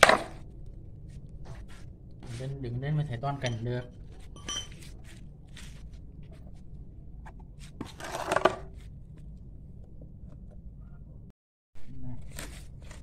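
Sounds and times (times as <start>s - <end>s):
mould shell scraping: 7.2s - 8.8s.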